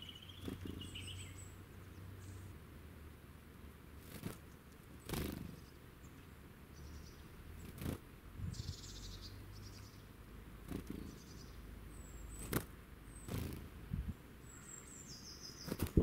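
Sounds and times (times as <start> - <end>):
high thin bird calls: 0.0 - 1.6, 10.7 - 13.7, 14.4 - 16.0
bird wings fluttering: 4.0 - 5.6, 7.6 - 8.0, 10.7 - 11.2, 12.4 - 12.7, 13.3 - 13.7, 15.6 - 16.0.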